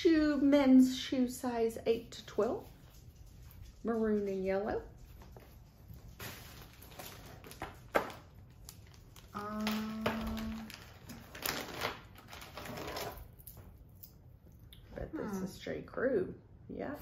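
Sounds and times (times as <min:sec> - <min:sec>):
plastic bag crinkling: 0:05.1 - 0:13.7
person humming: 0:09.4 - 0:10.7.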